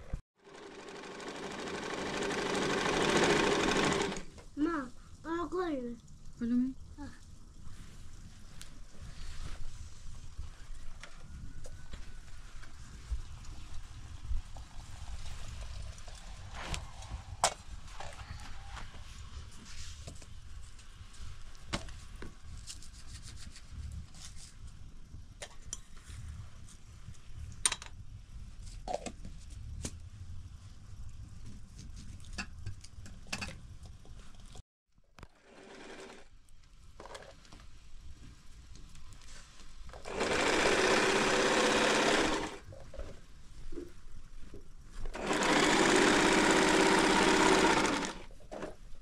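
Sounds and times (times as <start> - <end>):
sewing machine running: 0.4 - 4.3, 35.3 - 36.3, 40.0 - 42.6, 45.1 - 48.3.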